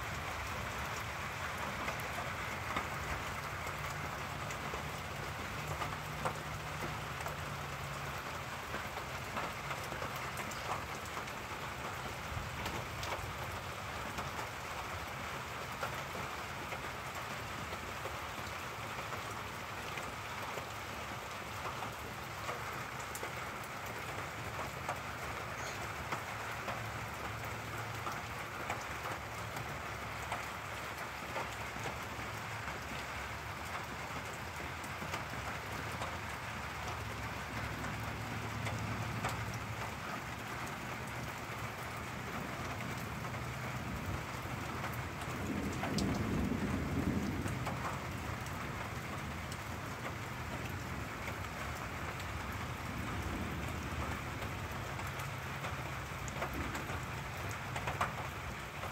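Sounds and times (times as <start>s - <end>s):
steady rain falling: 0.0s - 58.9s
thunder rumbling: 43.8s - 49.8s.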